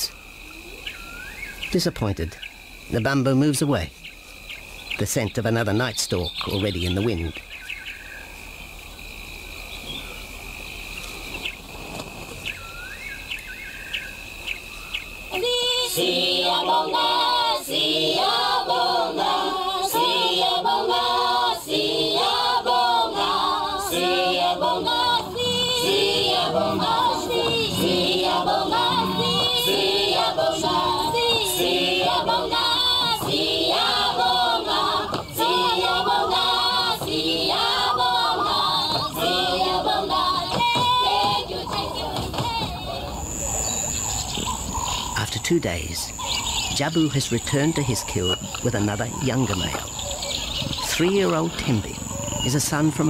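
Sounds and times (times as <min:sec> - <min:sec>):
insect high trill: 0:00.0 - 0:42.2, 0:43.1 - 0:53.0
choir singing: 0:15.3 - 0:44.1.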